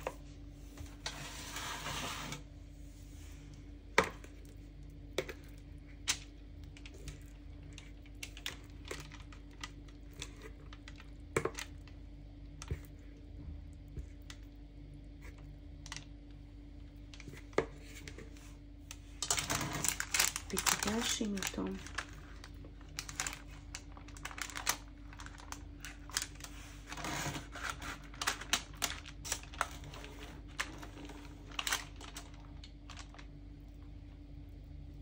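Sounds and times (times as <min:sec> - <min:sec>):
baking paper crinkling: 0:00.0 - 0:12.0, 0:15.2 - 0:34.2
faint steady hum: 0:00.0 - 0:35.0
spatula scraping mixing bowl: 0:00.8 - 0:02.5, 0:26.5 - 0:28.4.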